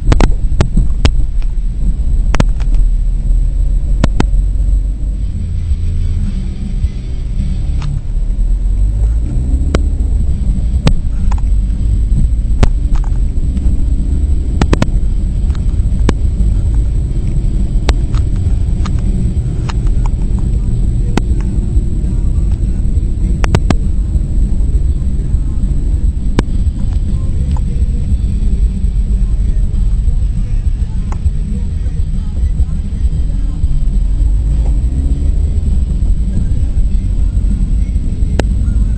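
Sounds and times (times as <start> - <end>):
car engine and road rumble: 0.0 - 38.9
sharp clicks: 12.6 - 22.7, 23.3 - 24.0.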